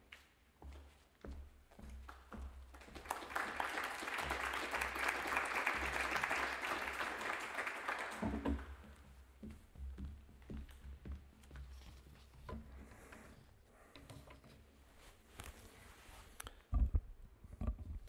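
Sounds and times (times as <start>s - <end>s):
audience applause: 2.7s - 8.9s.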